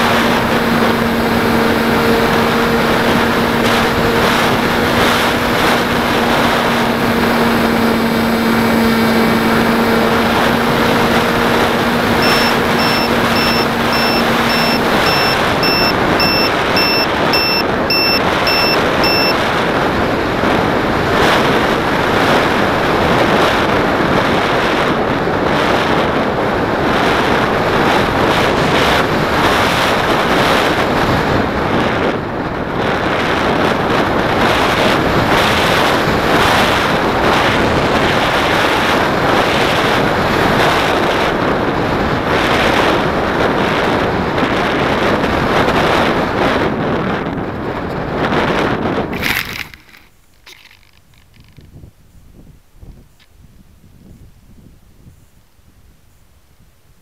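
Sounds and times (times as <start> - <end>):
motor hum: 0.0 - 19.4
wind rushing over model plane: 0.0 - 57.0
high beeping: 12.1 - 19.4.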